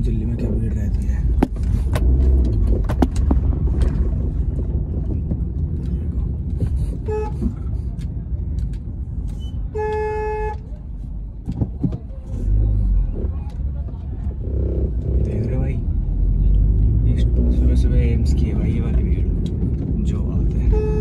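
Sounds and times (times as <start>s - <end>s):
street traffic rumble: 0.0s - 21.0s
vehicle horn honking: 7.0s - 7.6s, 9.7s - 10.7s, 20.6s - 21.0s.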